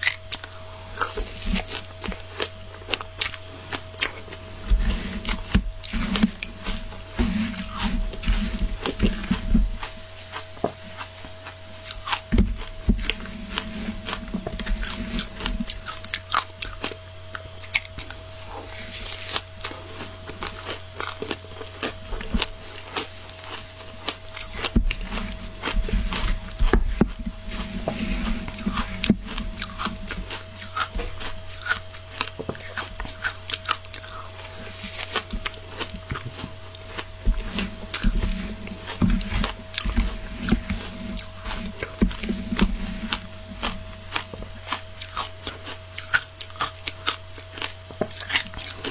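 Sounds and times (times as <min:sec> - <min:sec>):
crunching and chewing ice: 0:00.0 - 0:48.9
faint steady hum: 0:00.0 - 0:48.9.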